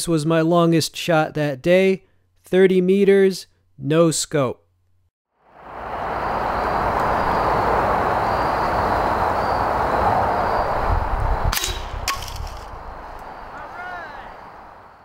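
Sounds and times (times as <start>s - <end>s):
steady outdoor rushing: 5.5s - 15.0s
suppressed air rifle shot: 11.5s - 12.6s.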